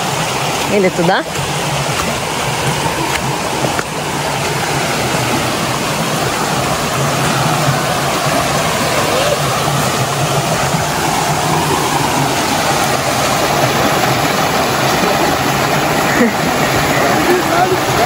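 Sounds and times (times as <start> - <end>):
stream flowing over rocks: 0.0 - 18.0.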